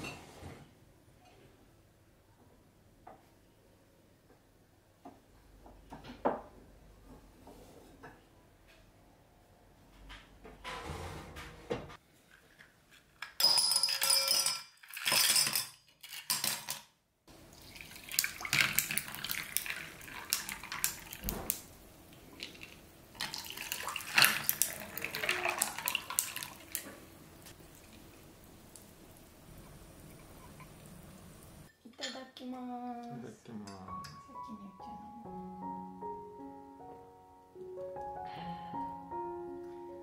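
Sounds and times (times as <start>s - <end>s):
glasses clinking with ice: 13.4s - 16.6s
drink poured over ice: 17.5s - 21.6s, 22.4s - 29.2s
ice cracking: 22.3s - 27.0s.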